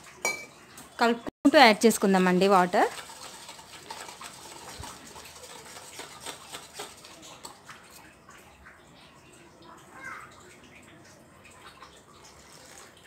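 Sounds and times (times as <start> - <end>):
whisk stirring wet batter: 1.9 - 8.3, 11.8 - 13.0
whisk clicking against metal bowl: 2.6 - 7.5.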